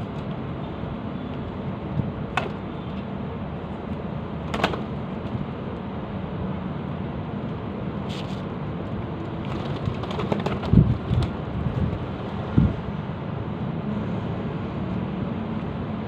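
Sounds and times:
pigeon wing flaps: 4.5 - 5.0, 9.4 - 12.1.

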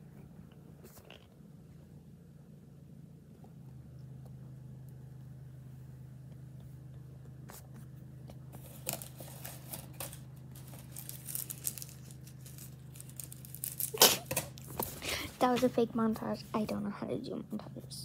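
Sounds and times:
low hum: 0.0 - 18.0
plastic bag crinkling: 8.6 - 15.6.

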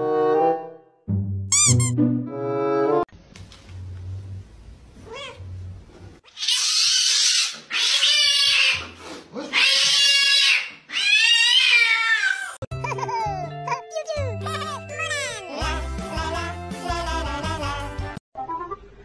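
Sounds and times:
cat screeching and yowling: 6.3 - 12.6.

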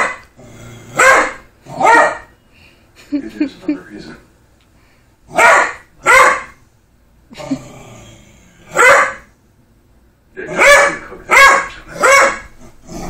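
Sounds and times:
dog barking: 0.0 - 0.3, 0.9 - 2.3, 5.3 - 6.6, 8.7 - 9.3, 10.5 - 12.6.

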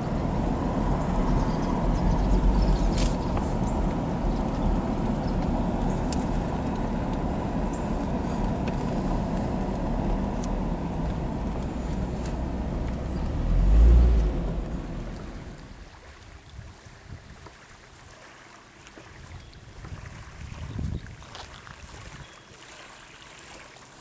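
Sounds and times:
deep low rumble: 0.0 - 16.2
car driving slowly: 0.0 - 17.6.

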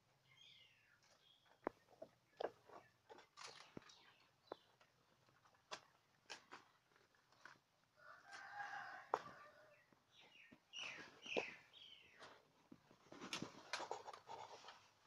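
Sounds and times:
rooster crowing: 8.0 - 9.8.

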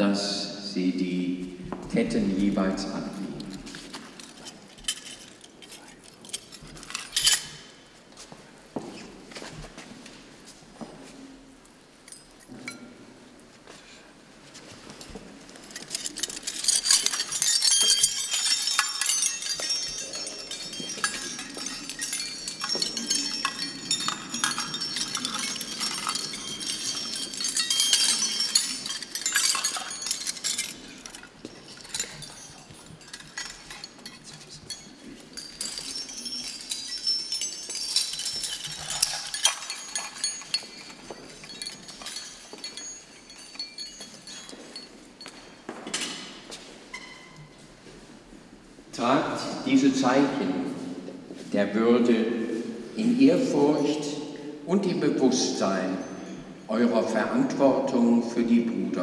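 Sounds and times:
metal chains jingling: 2.7 - 8.0, 14.8 - 47.6, 52.1 - 59.0.

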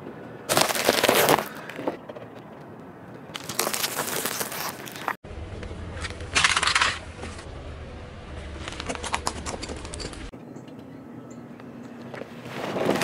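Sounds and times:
snack sticks crunching under tyre: 0.5 - 5.2
low rumble: 5.2 - 10.3.

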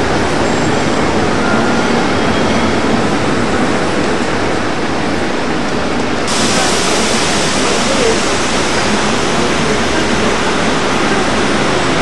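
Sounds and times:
rushing street noise: 0.0 - 12.0.

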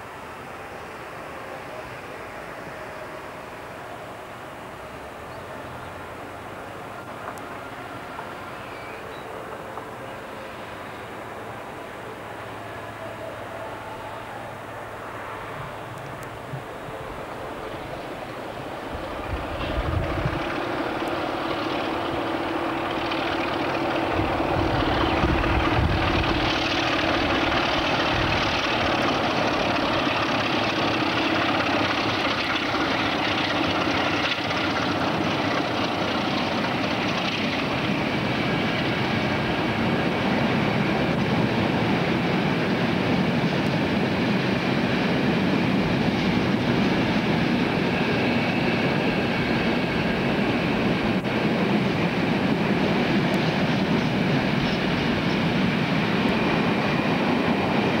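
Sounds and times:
diesel locomotive engine drone: 0.0 - 58.0
wagons rumbling and rattling: 18.9 - 42.0.

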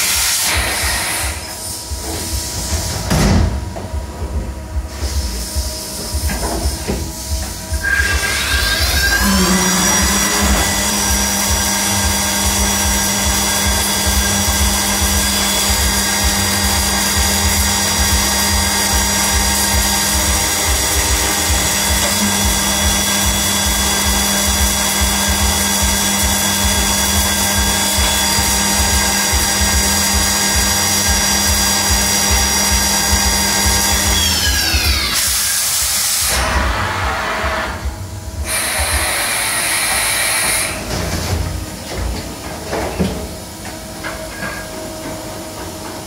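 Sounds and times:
milling spindle whine: 7.8 - 35.1.

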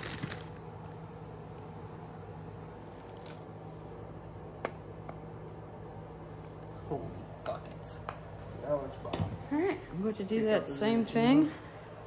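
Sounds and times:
plastic bag crinkling: 0.0 - 1.0, 2.8 - 3.5
low steady hum: 0.0 - 12.0.

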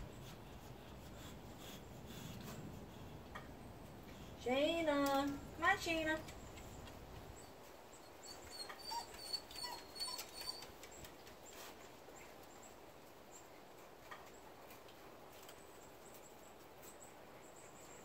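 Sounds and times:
dog whimpering: 8.1 - 10.9.

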